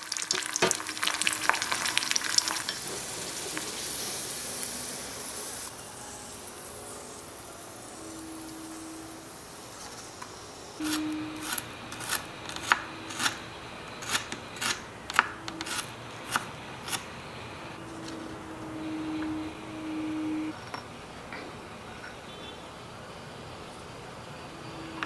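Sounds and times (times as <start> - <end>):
knife chopping onion on wooden board: 10.8 - 13.4, 14.0 - 17.0.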